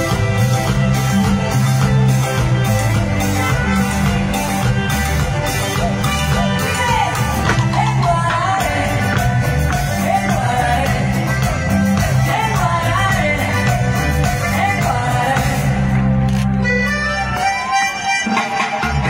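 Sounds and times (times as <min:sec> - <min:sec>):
band playing bass and drums: 0:00.0 - 0:19.0
woman singing: 0:06.4 - 0:16.0.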